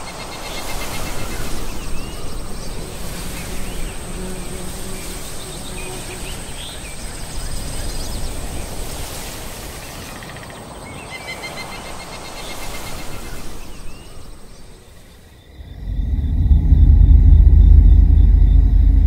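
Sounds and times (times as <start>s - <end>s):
steady hiss: 0.0s - 10.2s
deep low rumble: 15.6s - 19.0s
thin high whine: 15.6s - 19.0s.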